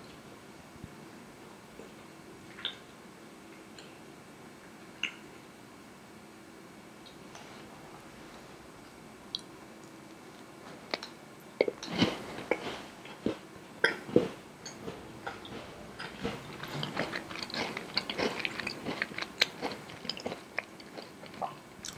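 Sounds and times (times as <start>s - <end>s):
crunchy chewing: 10.9s - 21.9s
crisp cookie bites: 15.3s - 21.9s.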